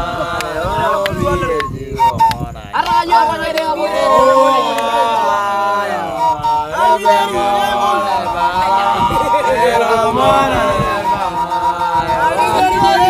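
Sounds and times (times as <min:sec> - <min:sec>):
several voices singing: 0:00.0 - 0:13.0.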